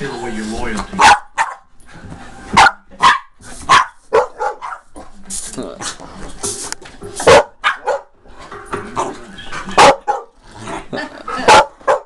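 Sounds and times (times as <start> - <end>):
small dog barking: 1.0 - 1.7, 2.6 - 4.8, 7.3 - 8.1, 9.8 - 10.3, 11.5 - 12.0.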